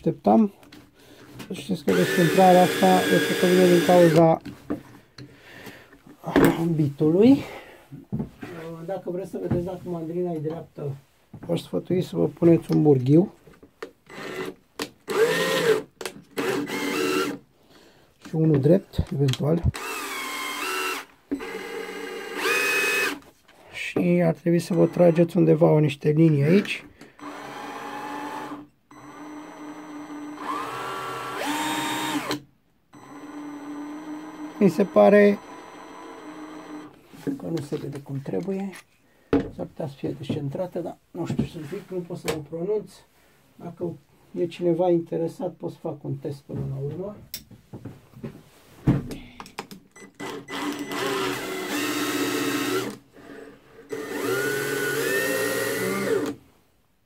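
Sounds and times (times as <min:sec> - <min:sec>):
cordless drill whining: 0:01.9 - 0:04.2, 0:14.1 - 0:17.4, 0:19.7 - 0:23.2, 0:24.6 - 0:25.3, 0:27.0 - 0:37.0, 0:50.0 - 0:56.4.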